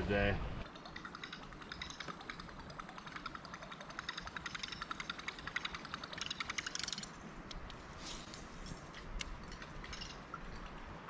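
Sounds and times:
fishing reel clicking: 0.8s - 7.1s.

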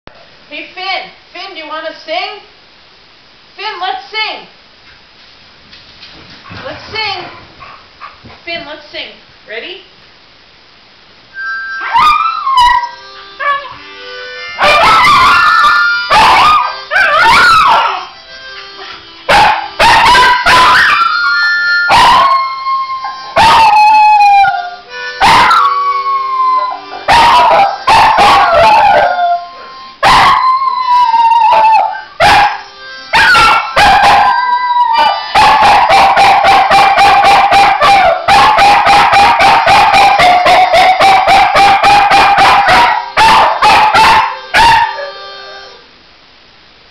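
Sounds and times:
harmonica notes: 11.3s - 46.0s
dog howling: 11.8s - 13.8s, 14.6s - 18.2s, 19.5s - 45.7s.

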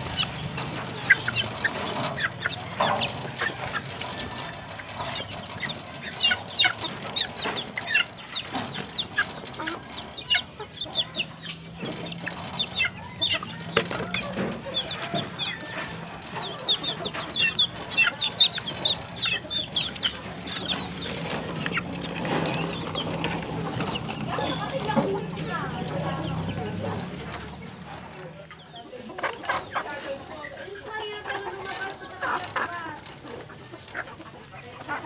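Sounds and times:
beaks pecking clay bowl: 0.0s - 27.6s
chicks chirping and clucking: 0.0s - 35.0s.

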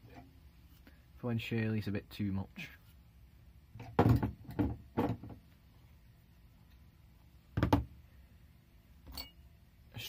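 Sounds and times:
hand tools knocking on workbench: 7.6s - 7.9s.

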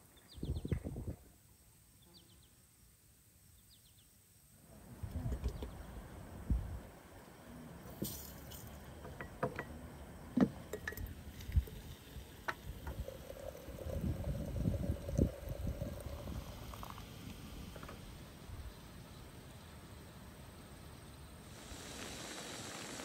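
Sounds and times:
hot water pouring into teapot: 7.8s - 18.8s, 21.5s - 23.0s.

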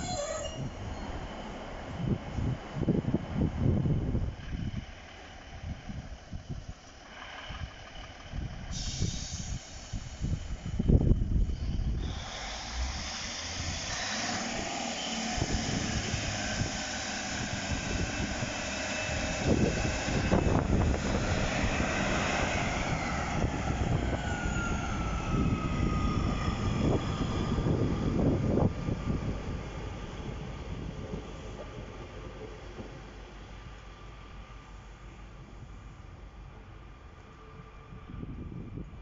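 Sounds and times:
diesel train engine rumble: 0.0s - 39.0s
high transmission whines: 10.0s - 34.9s.

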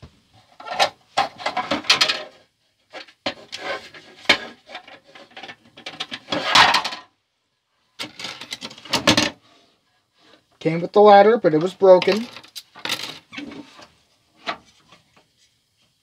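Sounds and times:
plastic toy parts clicking and knocking: 0.6s - 7.1s, 8.0s - 9.4s, 11.9s - 13.4s.

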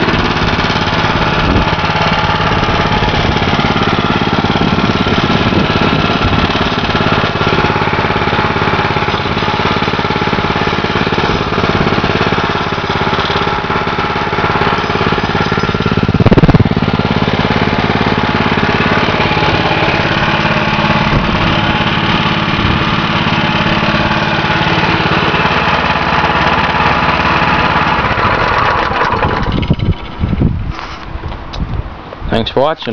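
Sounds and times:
small engine idling: 0.0s - 31.6s.

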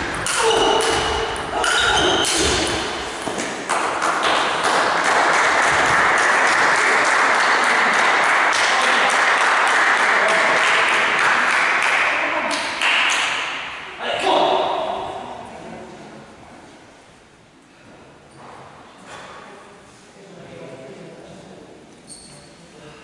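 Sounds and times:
audience applause: 3.7s - 12.2s.

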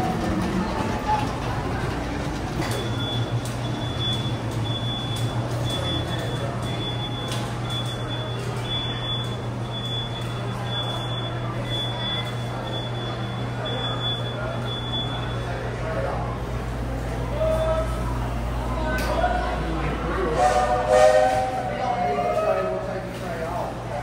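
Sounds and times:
steam train rumble: 0.0s - 6.1s, 19.5s - 22.9s.

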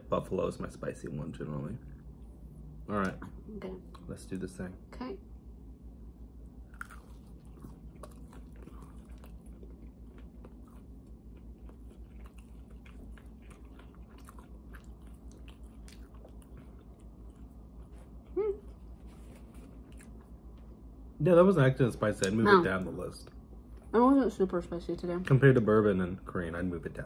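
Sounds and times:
people chewing food: 6.5s - 20.8s.

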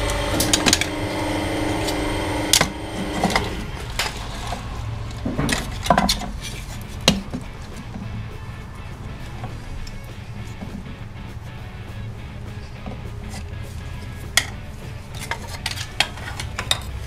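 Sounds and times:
hydraulic pump motor humming: 0.0s - 11.0s.

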